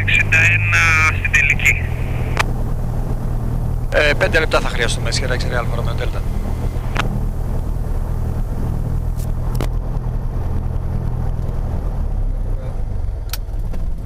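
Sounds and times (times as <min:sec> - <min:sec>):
aircraft engine idling: 0:00.0 - 0:09.7.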